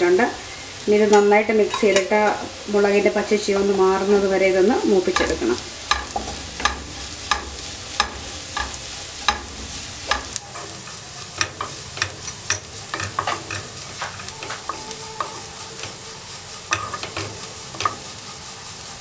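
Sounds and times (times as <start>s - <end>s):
frying sizzle in oil: 0.0s - 19.0s
spatula knocking against pan: 5.2s - 10.4s, 11.4s - 15.9s.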